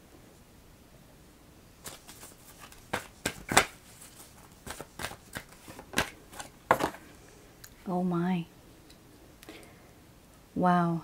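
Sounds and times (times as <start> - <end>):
cards shuffling: 1.8 - 7.0.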